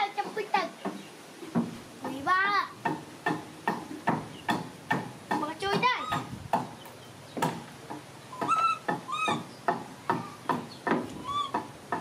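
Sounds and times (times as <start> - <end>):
monkey squeaking: 5.8 - 6.4, 8.3 - 11.8.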